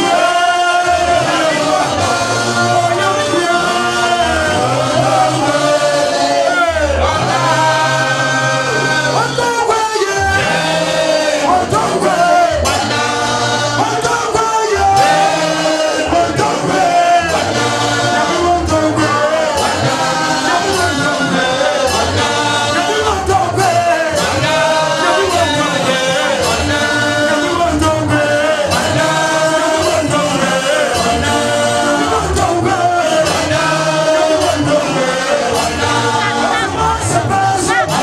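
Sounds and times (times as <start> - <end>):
men singing worship song: 0.0 - 38.0
pulsing bass line: 10.2 - 38.0.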